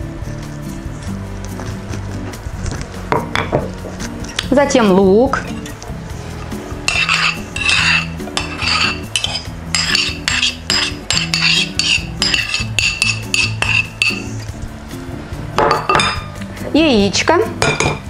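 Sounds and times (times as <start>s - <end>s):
background music: 0.0s - 18.0s
spoon clinking against bowls: 6.8s - 14.4s, 15.6s - 16.4s, 17.6s - 18.0s
metal spoon scraping bowl: 6.8s - 14.5s.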